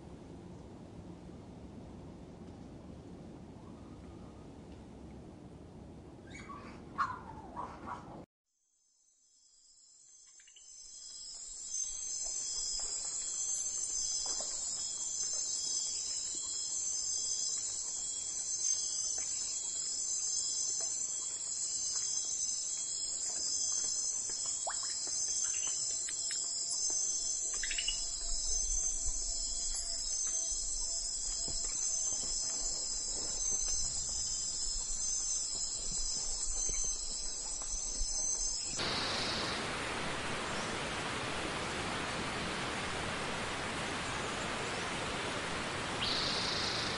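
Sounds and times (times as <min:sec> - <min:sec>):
insects trilling: 0:09.3 - 0:39.8, 0:45.9 - 0:46.9.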